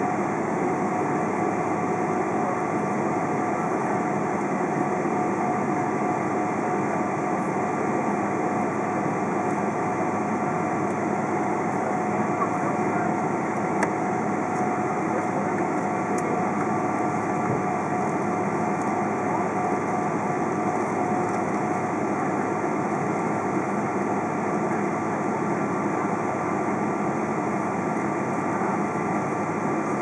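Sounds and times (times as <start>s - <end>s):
jet engines whining: 0.0s - 30.0s.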